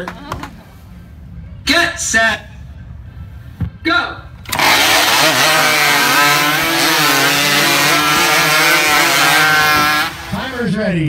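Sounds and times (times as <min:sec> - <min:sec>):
chainsaws cutting logs: 0:04.5 - 0:10.7.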